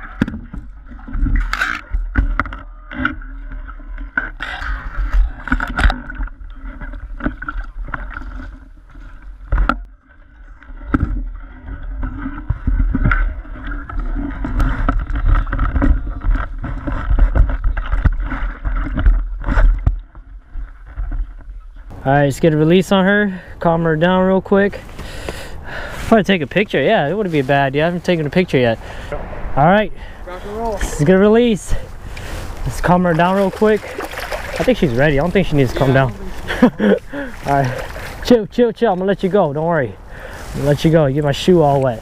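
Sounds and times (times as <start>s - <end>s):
water splashing and sloshing: 0.0s - 42.0s
fish thrashing in a net: 32.3s - 38.3s.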